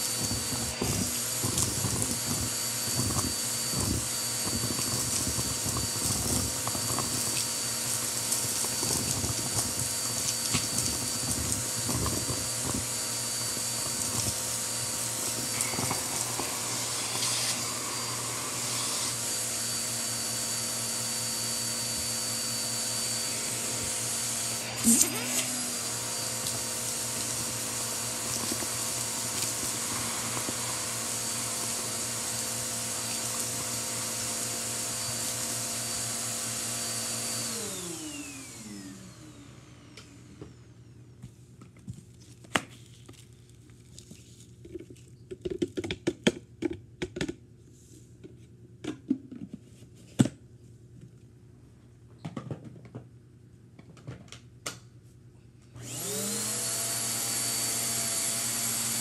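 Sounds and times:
vacuum motor spinning down: 0.0 - 41.0, 55.8 - 59.0
vacuum cleaner running: 0.0 - 41.2, 55.7 - 59.0.

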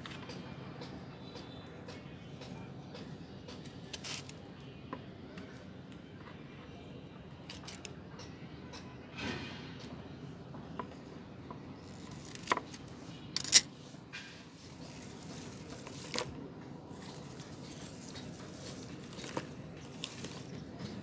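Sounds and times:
scissors snipping leaves: 3.5 - 4.4, 7.5 - 7.9, 11.8 - 13.7, 14.6 - 21.0
leaves rustling: 11.8 - 21.0.

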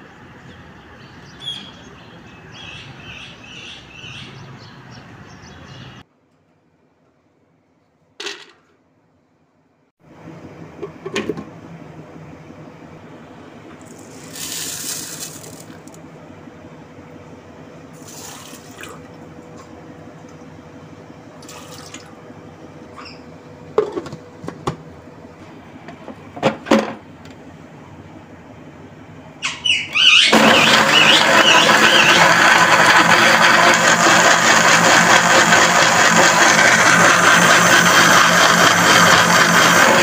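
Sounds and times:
short hissing pours: 13.9 - 15.8.

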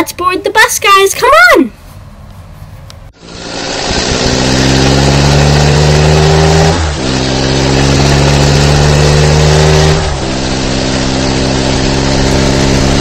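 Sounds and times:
bus engine pulling away: 3.2 - 13.0.

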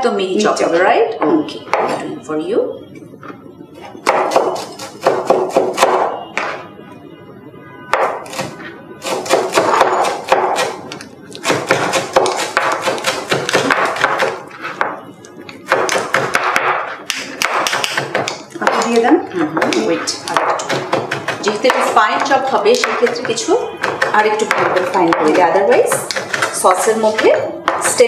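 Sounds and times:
knife chopping on cutting board: 4.0 - 6.6, 7.9 - 10.8, 11.4 - 15.0, 15.7 - 19.0, 19.6 - 28.0.

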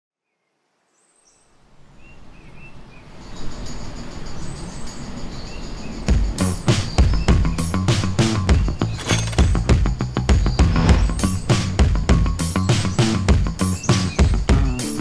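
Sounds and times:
bird chirps: 0.3 - 11.7
music: 5.7 - 15.0
heavy hits: 8.6 - 11.8.

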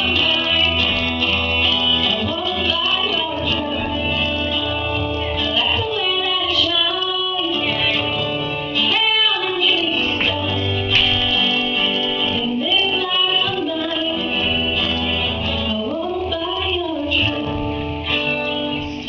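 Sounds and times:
acoustic guitar: 0.0 - 19.0
girl singing into microphone: 0.0 - 19.0.

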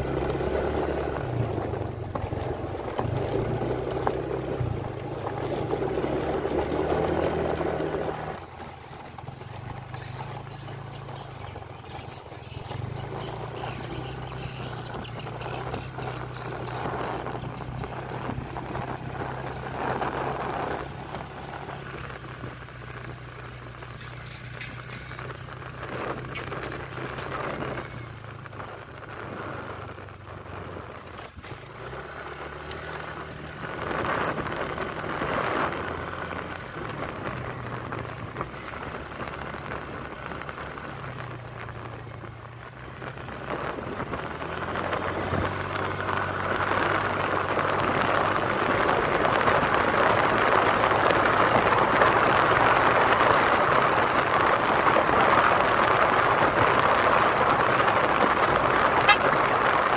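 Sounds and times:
motorcycle engine running: 0.0 - 59.9
wind rushing on microphone: 10.0 - 59.9.

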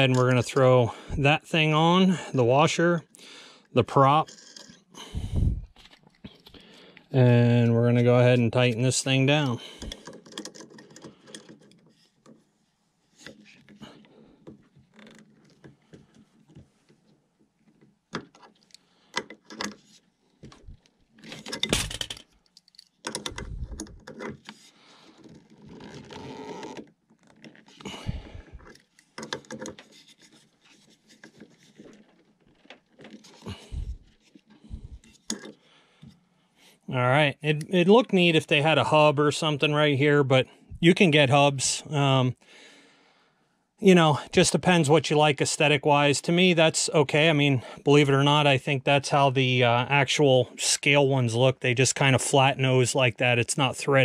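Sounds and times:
wooden propeller being handled: 4.2 - 36.2.

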